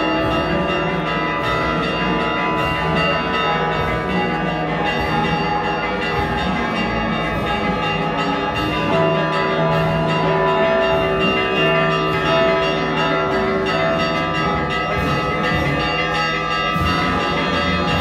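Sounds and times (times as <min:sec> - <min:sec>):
church bells ringing a peal: 0:00.0 - 0:18.0.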